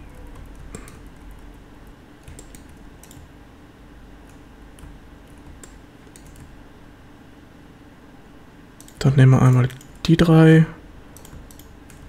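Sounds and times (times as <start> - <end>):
keyboard and mouse clicks: 0.0 - 1.5, 2.2 - 3.3, 4.2 - 6.5, 8.8 - 10.0, 11.1 - 12.0
faint steady hum: 0.0 - 12.0.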